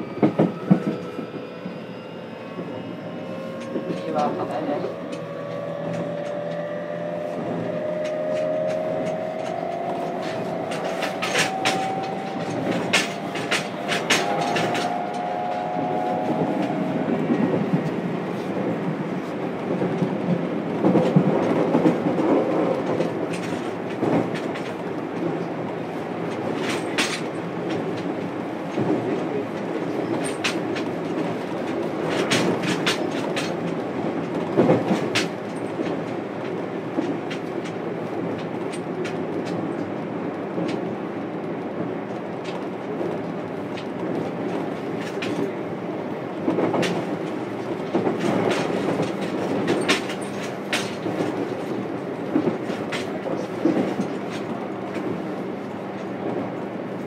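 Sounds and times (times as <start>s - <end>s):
train rolling rumble: 0.0s - 57.0s
train motor whine: 0.2s - 18.3s
wheel clicks over rail joints: 8.0s - 15.6s, 30.0s - 39.9s, 46.5s - 55.2s.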